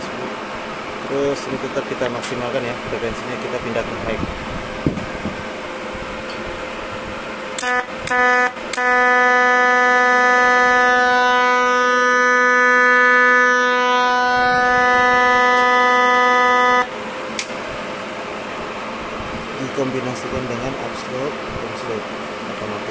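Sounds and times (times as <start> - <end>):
welding arc buzzing: 7.5 - 17.5.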